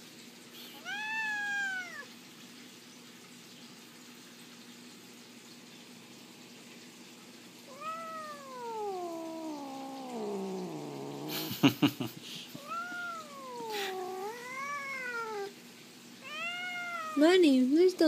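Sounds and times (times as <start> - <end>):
cat yowling: 0.7 - 2.1, 7.7 - 11.7, 12.5 - 15.6, 16.2 - 17.4.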